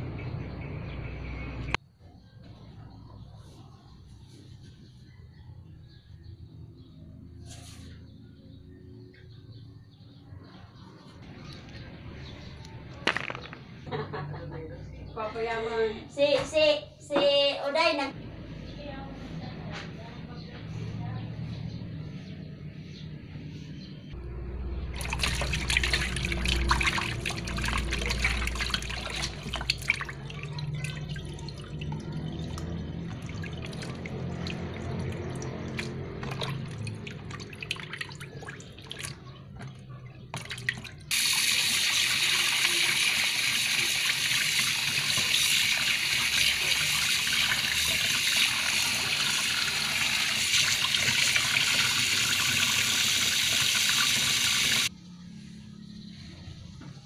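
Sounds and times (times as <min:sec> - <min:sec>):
tap water running: 0:25.0 - 0:38.0, 0:40.4 - 0:54.9
water sloshing and splashing: 0:25.0 - 0:41.1.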